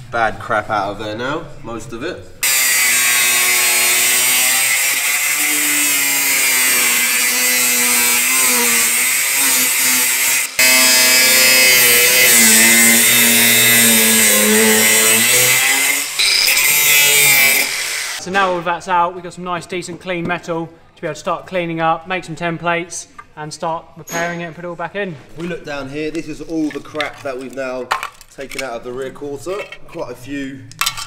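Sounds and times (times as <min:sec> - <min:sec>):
angle grinder cutting steel: 0:02.4 - 0:18.2.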